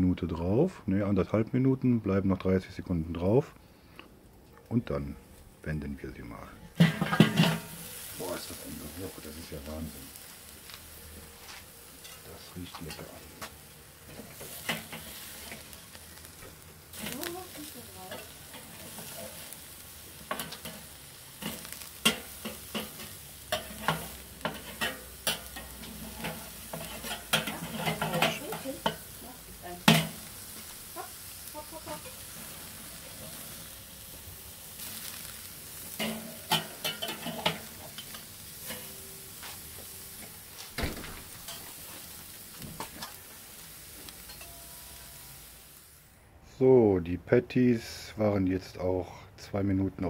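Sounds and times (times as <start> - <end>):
burgers sizzling on a grill: 2.6 - 46.8
metal spatula scraping grill grate: 6.6 - 45.8.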